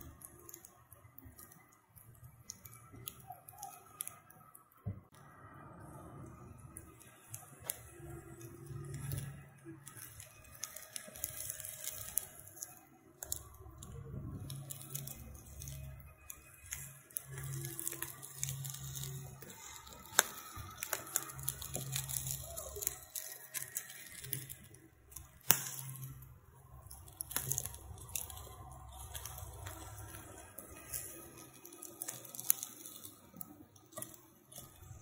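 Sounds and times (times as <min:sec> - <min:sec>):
low steady hum: 0:00.0 - 0:35.0
wood fire crackling and popping: 0:00.0 - 0:35.0
meat sizzling: 0:14.4 - 0:35.0.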